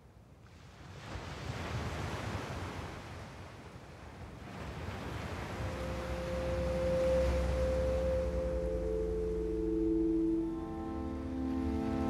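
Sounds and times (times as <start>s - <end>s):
ocean surf waves: 0.5s - 12.0s
held synth tone: 5.5s - 12.0s.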